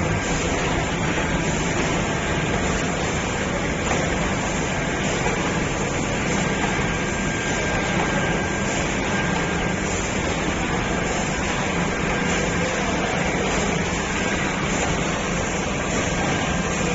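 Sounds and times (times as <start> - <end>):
laminating machine rumble and hiss: 0.0 - 16.9.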